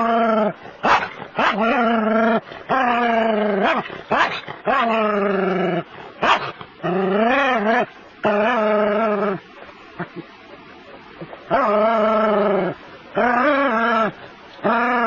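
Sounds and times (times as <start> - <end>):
dog whining and barking: 0.0 - 9.8
dog yipping: 0.8 - 1.6, 6.2 - 6.5.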